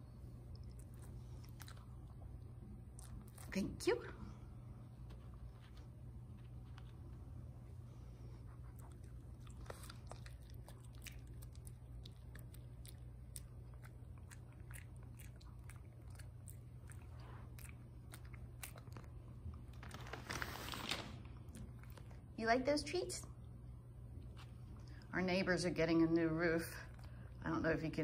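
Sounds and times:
dog chewing crunchy treat: 0:08.6 - 0:22.3.

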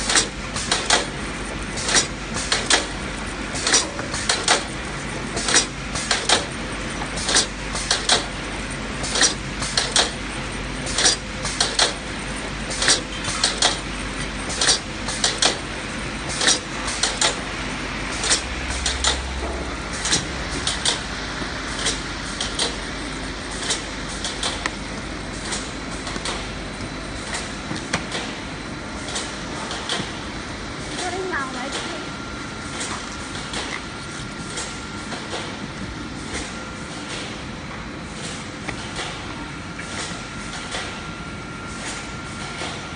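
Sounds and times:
sharp machine clicks and snaps: 0:00.0 - 0:01.1, 0:01.8 - 0:02.9, 0:03.6 - 0:04.7, 0:05.4 - 0:06.5, 0:07.3 - 0:08.3, 0:09.0 - 0:10.2, 0:10.9 - 0:12.0, 0:12.7 - 0:13.8, 0:14.5 - 0:15.6, 0:16.3 - 0:17.4, 0:18.2 - 0:19.2, 0:21.8 - 0:22.8
packaging machinery humming: 0:00.0 - 0:42.9.

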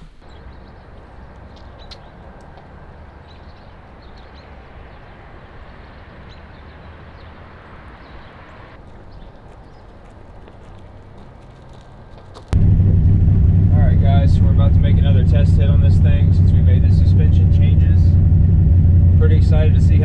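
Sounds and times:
vehicle running: 0:12.5 - 0:20.0.

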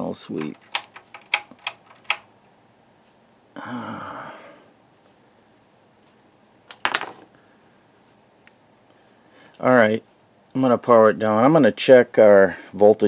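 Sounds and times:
rotary switch clicks: 0:00.4 - 0:02.3
breathy sigh: 0:03.6 - 0:04.7.

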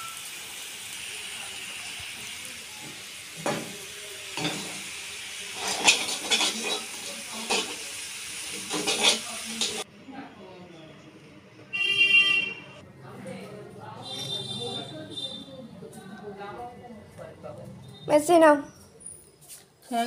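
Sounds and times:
noodles sizzling in a wok: 0:00.0 - 0:09.9
spoon clattering against pan: 0:05.6 - 0:07.8, 0:08.7 - 0:09.8.

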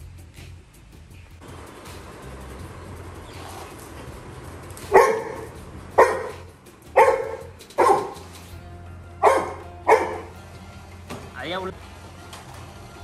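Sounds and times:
puppy barking: 0:04.8 - 0:08.4, 0:09.2 - 0:10.4.

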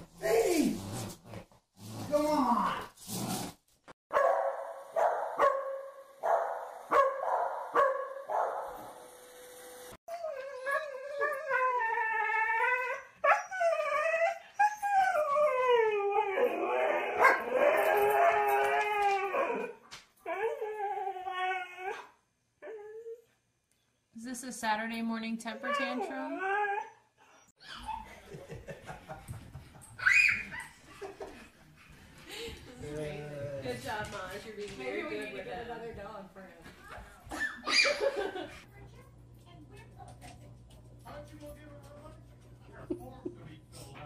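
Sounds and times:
dog barking: 0:04.1 - 0:08.8, 0:17.2 - 0:17.5
dog howling: 0:10.1 - 0:22.1.

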